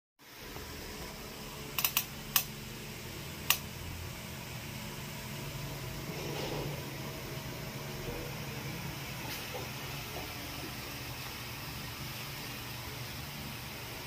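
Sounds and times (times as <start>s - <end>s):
low steady hum: 0.2s - 14.0s.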